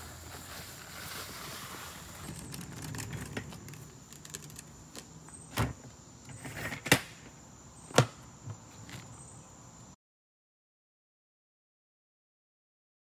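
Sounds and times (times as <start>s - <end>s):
tool box wheels rumbling: 0.1s - 6.8s.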